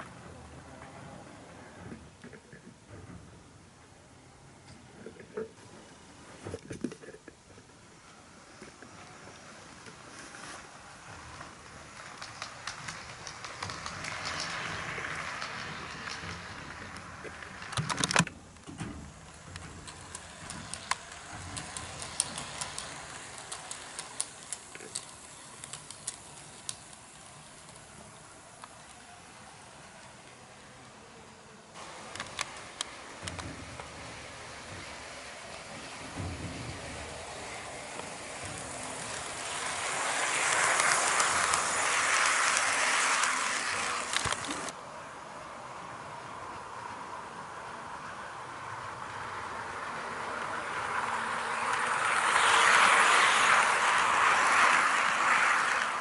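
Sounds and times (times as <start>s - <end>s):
wheels clicking over rail joints: 0.0s - 44.9s, 45.6s - 56.0s
model train running rumble: 8.4s - 17.8s, 18.9s - 44.8s, 46.5s - 56.0s.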